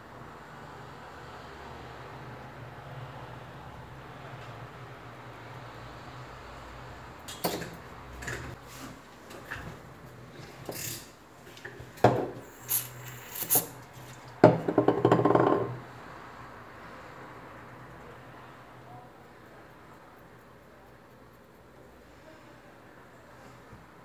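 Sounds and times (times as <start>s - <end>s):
aerosol can spraying: 12.4s - 13.8s.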